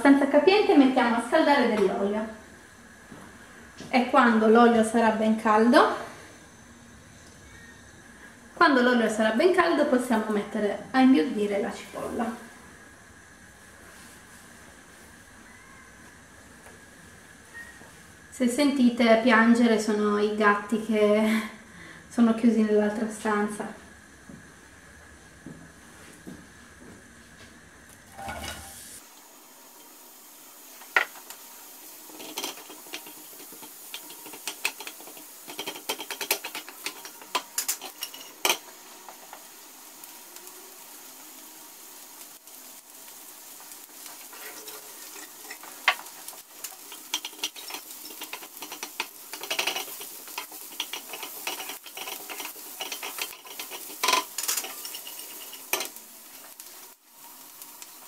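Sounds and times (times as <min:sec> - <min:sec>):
onion sizzling in oil: 0:00.0 - 0:26.1, 0:27.8 - 0:58.0
stirring clicks and scrapes on pan: 0:32.0 - 0:39.4, 0:43.6 - 0:56.9.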